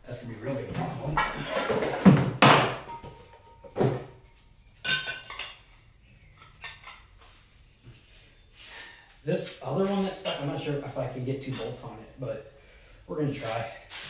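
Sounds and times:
metal hand tools clattering: 0:01.2 - 0:02.2.

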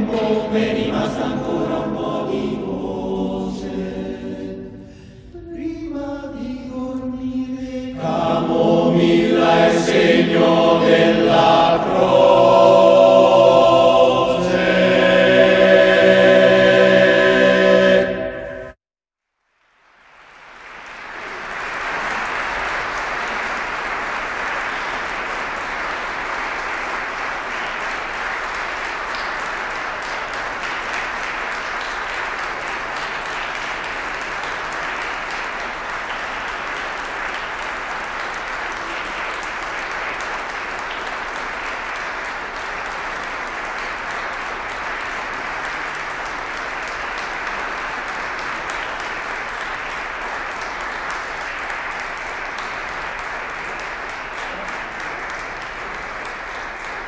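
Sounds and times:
audience applauding: 0:19.6 - 0:57.0.

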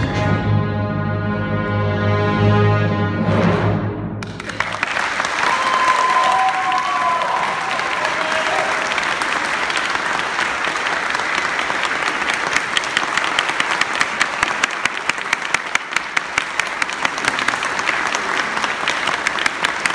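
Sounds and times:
audience applauding: 0:04.2 - 0:19.9
loud sharp claps close by: 0:04.2 - 0:19.9.

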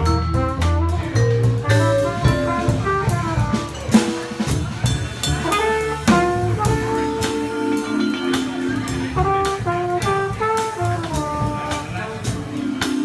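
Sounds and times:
plucked double bass: 0:00.0 - 0:13.0
vibraphone notes: 0:00.0 - 0:13.0
cymbal and drum hits: 0:01.2 - 0:09.7.

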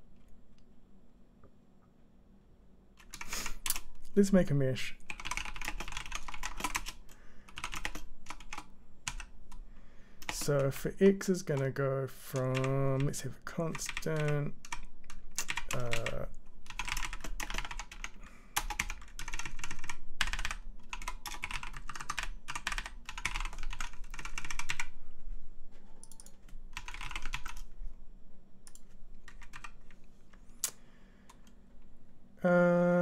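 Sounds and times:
typing on a keyboard: 0:03.0 - 0:03.9, 0:05.0 - 0:09.3, 0:10.2 - 0:10.7, 0:12.4 - 0:24.9, 0:26.0 - 0:27.7, 0:28.7 - 0:30.0.

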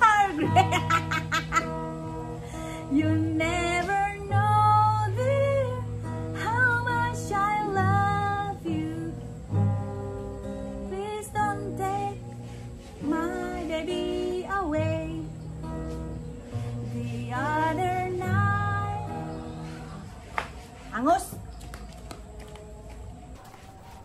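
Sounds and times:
woman singing: 0:00.0 - 0:01.0, 0:02.5 - 0:09.6, 0:10.8 - 0:15.5, 0:16.6 - 0:20.1
acoustic guitar strumming: 0:00.0 - 0:20.1.

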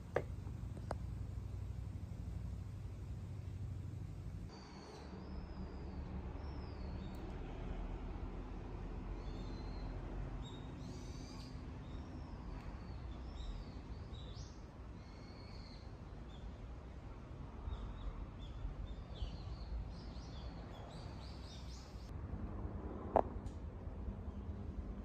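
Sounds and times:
low steady background rumble: 0:00.0 - 0:25.0
small birds chirping and whistling: 0:04.5 - 0:07.2, 0:09.2 - 0:16.5.

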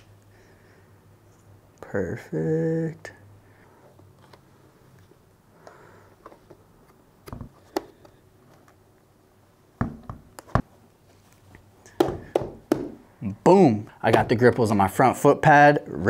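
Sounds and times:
sharp taps and knocks: 0:11.9 - 0:13.0.

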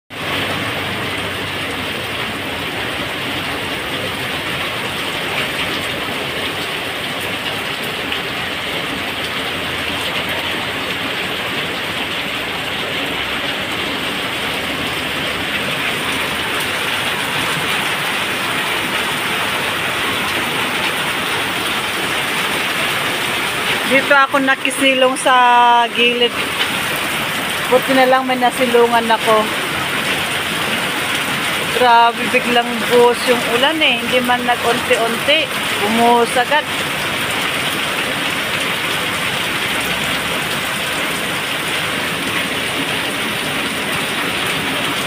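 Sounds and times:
heavy rain pouring: 0:00.1 - 0:45.0.

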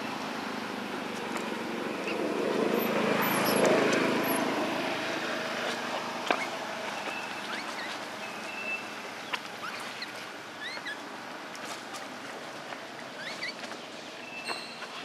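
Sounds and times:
outdoor background hiss: 0:00.0 - 0:15.0
high chirping calls: 0:06.3 - 0:11.0, 0:13.2 - 0:15.0.

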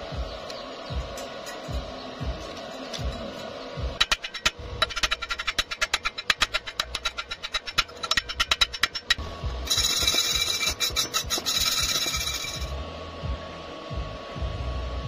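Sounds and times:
metallic scraping hiss: 0:00.9 - 0:12.8
chipping hammer tapping on weld: 0:04.0 - 0:12.7.

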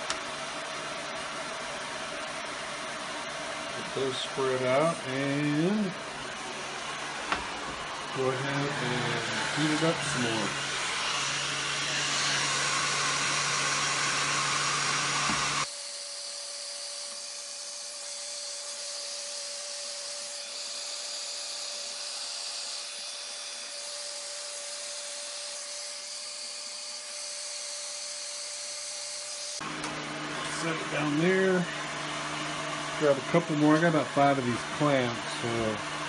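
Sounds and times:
heat gun whine: 0:00.0 - 0:36.0
heat gun blowing hiss: 0:03.7 - 0:32.4.

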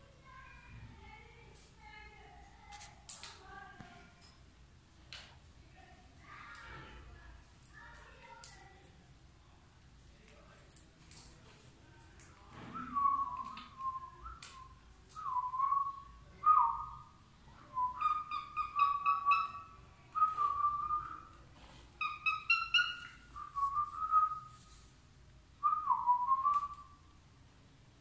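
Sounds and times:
cockatiel whistling: 0:17.7 - 0:21.3, 0:22.0 - 0:24.5.

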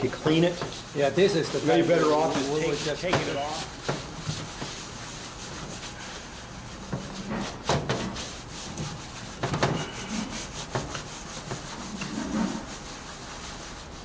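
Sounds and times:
paper towel rubbing on metal: 0:00.0 - 0:14.0.

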